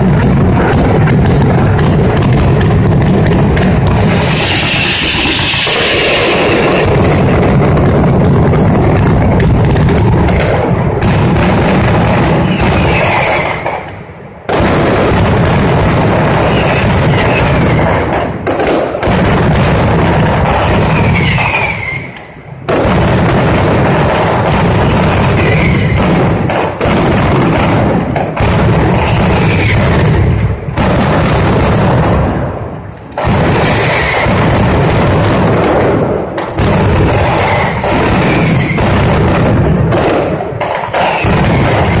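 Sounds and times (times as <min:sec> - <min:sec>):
firecrackers exploding: 0:00.0 - 0:42.0
falling whistles: 0:21.0 - 0:22.2.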